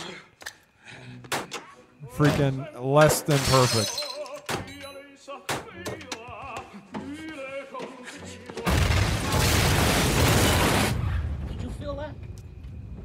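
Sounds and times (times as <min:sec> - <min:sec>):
operatic voice singing: 0:02.0 - 0:08.8.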